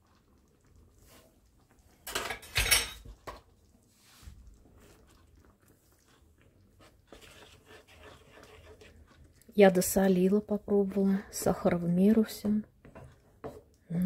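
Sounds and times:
spatula stirring sauce in a pan: 0.0s - 2.1s, 3.0s - 13.9s
kitchen utensils clattering: 2.1s - 3.1s.

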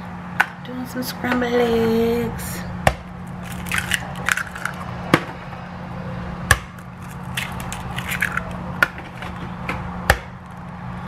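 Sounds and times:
steady low hum: 0.0s - 11.0s
eggshell crackling: 3.2s - 4.9s, 6.7s - 8.6s.

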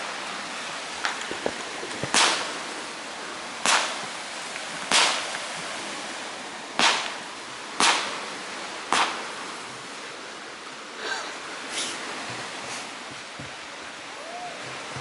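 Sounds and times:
steady hiss: 0.0s - 15.0s
firework pops: 1.0s - 2.5s.

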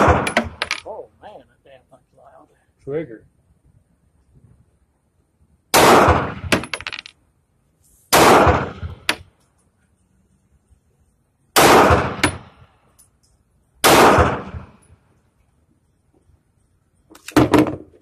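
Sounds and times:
pistol shots with echo: 0.0s - 0.6s, 5.7s - 6.7s, 8.1s - 9.1s, 11.6s - 12.5s, 13.8s - 14.7s.

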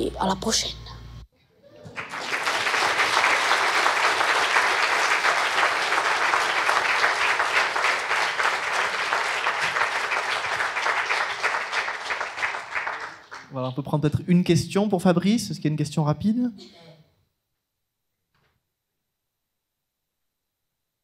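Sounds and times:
audience applauding: 1.8s - 13.8s.

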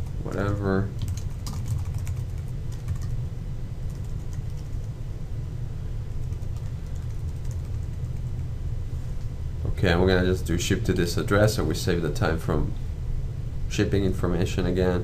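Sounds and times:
steady low rumble: 0.0s - 15.0s
computer keyboard typing: 0.3s - 3.2s, 3.9s - 4.9s, 6.2s - 8.4s.

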